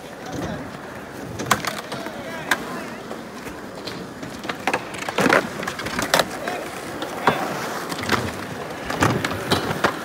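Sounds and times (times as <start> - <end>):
skateboard clacks and slams: 0.0 - 10.0
skateboard wheels rolling: 0.0 - 10.0
skaters chattering: 0.0 - 10.0.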